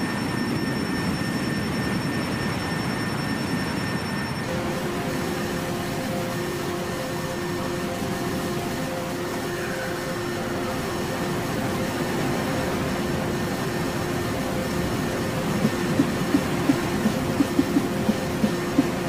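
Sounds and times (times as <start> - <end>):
low synthesizer tones: 4.4 - 19.0
steady noisy wash: 4.4 - 19.0.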